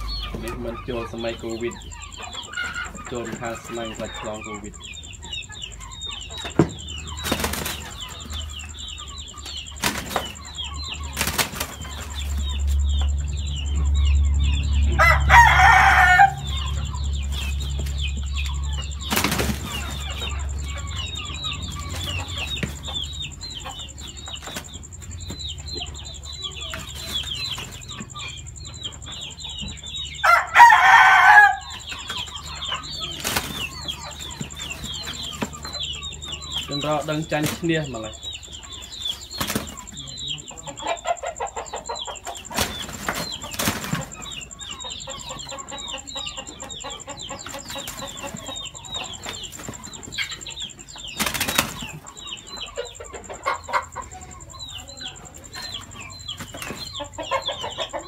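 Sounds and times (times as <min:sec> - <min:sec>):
faint high chirping: 0:00.0 - 0:58.0
wings flapping: 0:06.5 - 0:08.3, 0:09.8 - 0:10.4, 0:11.1 - 0:12.4, 0:19.1 - 0:20.3, 0:33.1 - 0:33.7, 0:39.4 - 0:39.9, 0:42.5 - 0:44.3, 0:51.2 - 0:52.0
rooster crowing: 0:14.5 - 0:17.2, 0:30.0 - 0:33.0.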